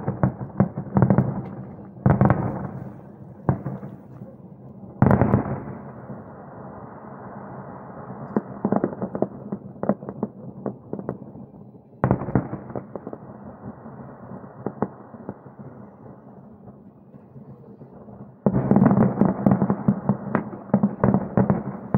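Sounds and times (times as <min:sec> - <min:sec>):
fireworks bangs and crackling: 0:00.0 - 0:21.9
fireworks rumbling: 0:00.0 - 0:21.9.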